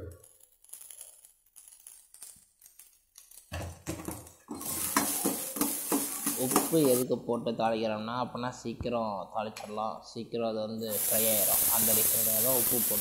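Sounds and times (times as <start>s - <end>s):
spoon scraping and clinking pan: 4.5s - 7.0s
shallots sizzling in hot oil: 4.6s - 7.0s, 10.9s - 13.0s.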